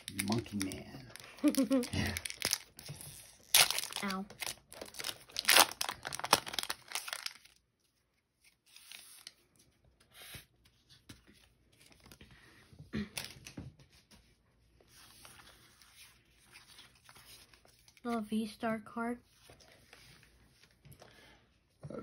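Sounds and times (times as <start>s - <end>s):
foil pack crinkling: 0.0s - 7.6s.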